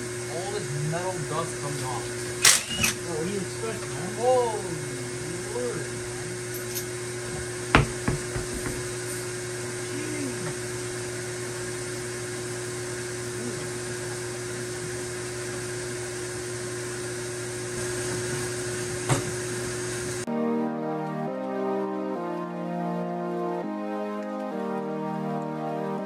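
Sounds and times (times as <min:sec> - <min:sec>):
steady hum: 0:00.0 - 0:20.3
hand tools knocking on metal: 0:07.7 - 0:08.9.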